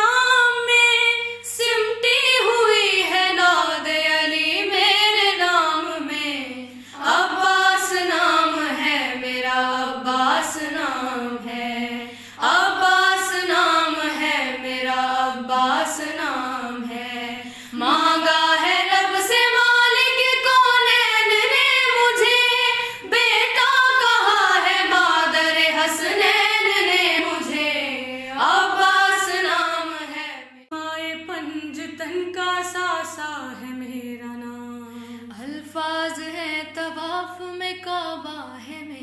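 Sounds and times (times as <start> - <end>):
girls singing unaccompanied: 0.0 - 30.7.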